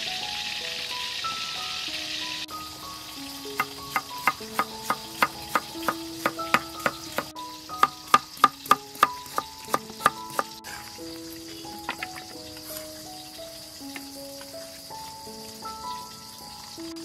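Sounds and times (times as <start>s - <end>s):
background music: 0.0s - 17.0s
knife chopping on wooden board: 3.6s - 10.6s.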